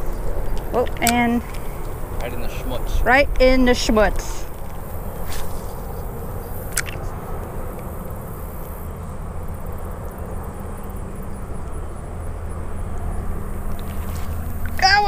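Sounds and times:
sharp click: 6.7 - 7.0.

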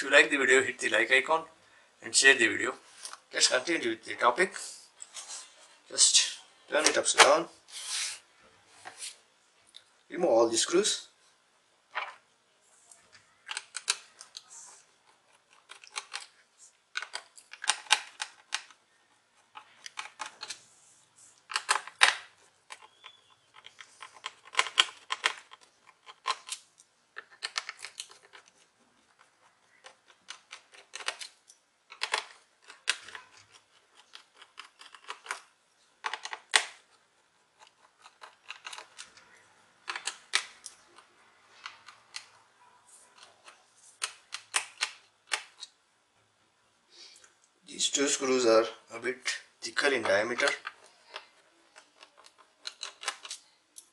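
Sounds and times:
screwdriver clicking and scraping: 37.6 - 39.1.

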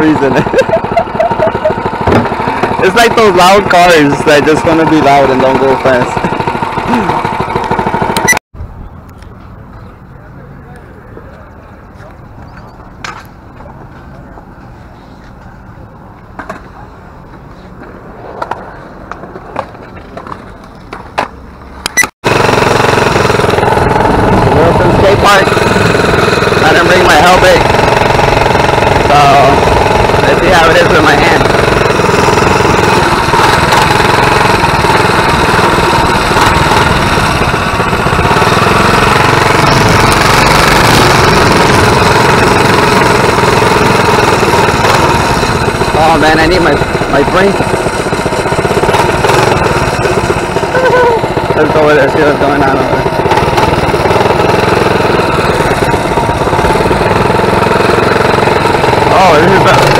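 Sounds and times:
small engine running raspy: 0.0 - 8.4, 21.9 - 59.9
skateboards rolling on concrete: 9.2 - 59.9.

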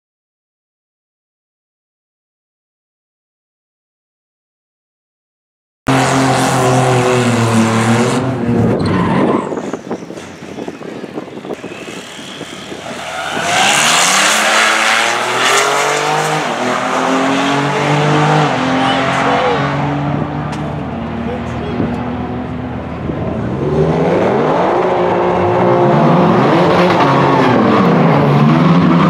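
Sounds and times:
car engine revving: 5.9 - 29.0
cars accelerating hard: 5.9 - 29.0.

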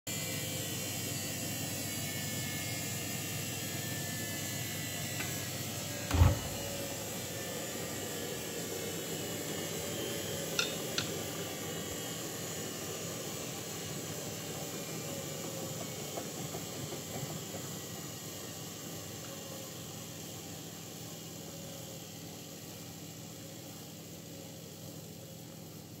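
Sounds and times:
washing machine drum whirring: 5.3 - 12.6
heavy thump: 6.1 - 6.8.

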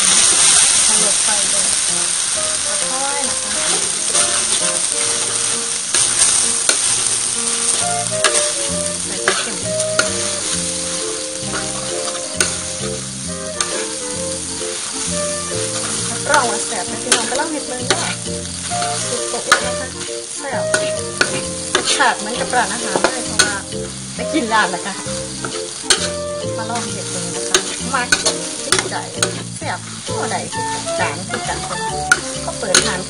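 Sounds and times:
food sizzling in a wok: 0.0 - 33.0
spatula scraping a wok: 0.0 - 33.0
spatula clicking against pan: 25.4 - 26.1, 27.5 - 29.4, 32.1 - 33.0.

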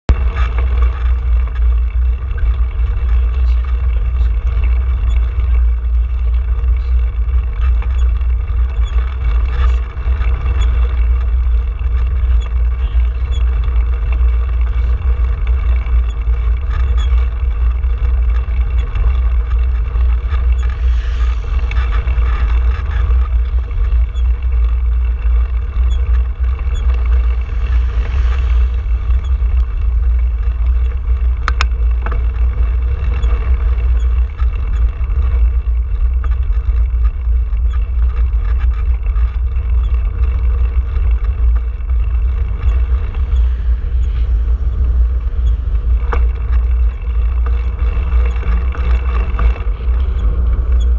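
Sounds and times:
bicycle tyre road noise: 0.0 - 50.9
wind rumbling on microphone: 0.0 - 50.9
vehicle passing with hiss: 20.6 - 22.9, 26.9 - 30.2.

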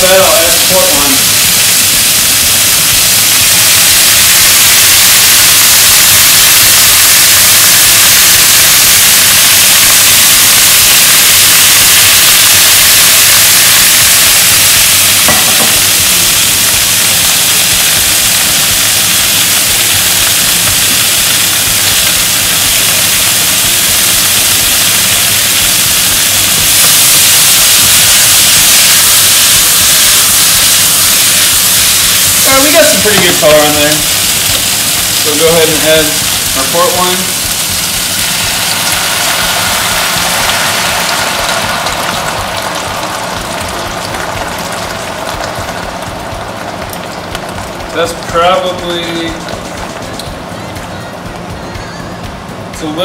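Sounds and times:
vegetables sizzling in oil: 0.0 - 53.0
pan shaken tossing vegetables: 41.0 - 50.5.

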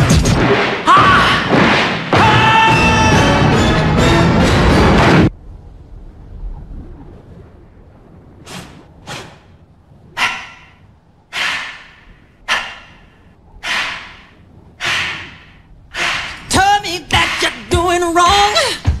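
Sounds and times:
film soundtrack music: 1.4 - 5.9.

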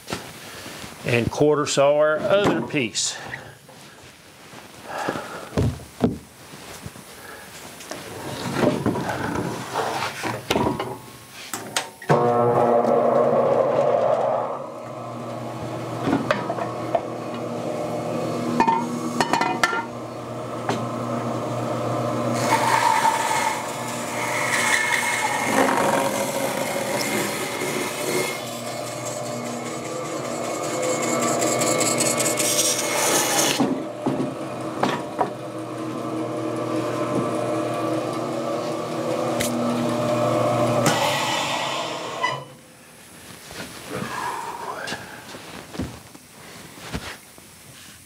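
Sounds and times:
bandsaw motor hum: 12.1 - 42.6
bandsaw blade rasping through wood: 22.2 - 42.4.

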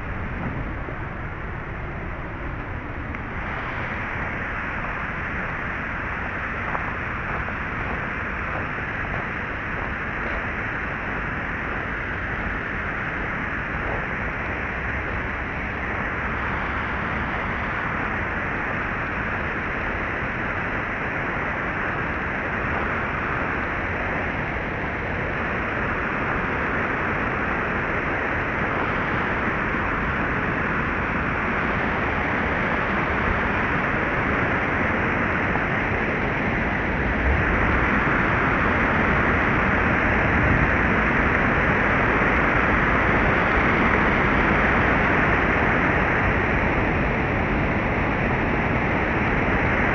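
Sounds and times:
water rushing over a weir: 0.0 - 49.9.

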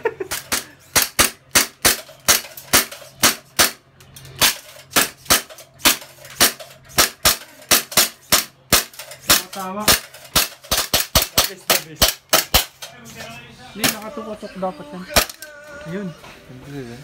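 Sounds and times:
airsoft gun shots: 0.9 - 3.8, 4.4 - 12.8.

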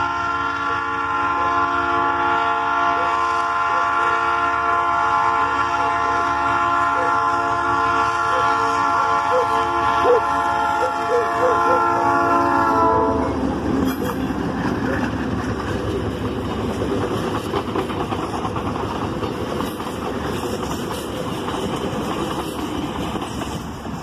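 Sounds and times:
train wheels clattering on rails: 13.3 - 24.0.

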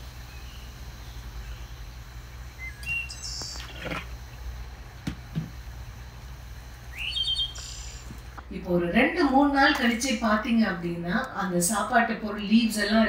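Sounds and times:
birds chirping: 0.0 - 4.6, 6.8 - 8.6, 12.4 - 13.0.

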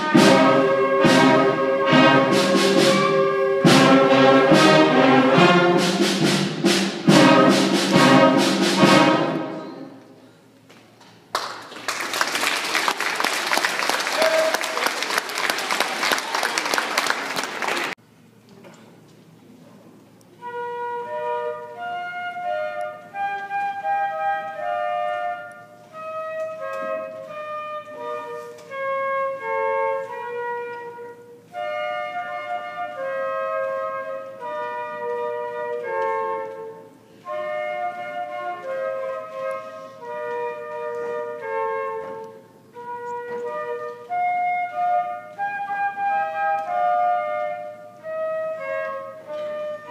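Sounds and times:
flute melody: 0.0 - 10.4, 14.1 - 15.1, 20.3 - 49.9
applause: 11.3 - 18.0.

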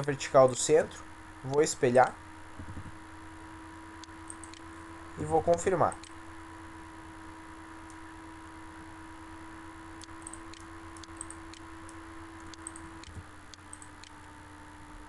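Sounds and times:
low electrical hum: 0.0 - 15.0
computer mouse clicks: 4.0 - 4.7, 10.0 - 11.6, 12.4 - 14.3.

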